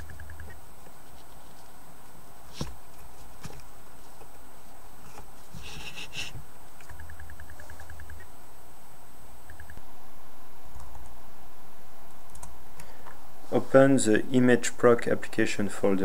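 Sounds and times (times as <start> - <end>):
steady hiss: 0.0 - 7.0.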